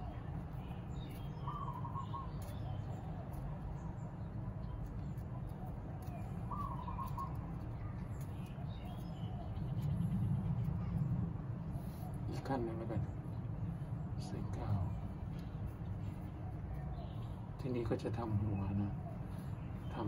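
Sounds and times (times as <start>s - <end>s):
steady low hum: 0.0s - 20.0s
dove cooing: 6.5s - 7.4s.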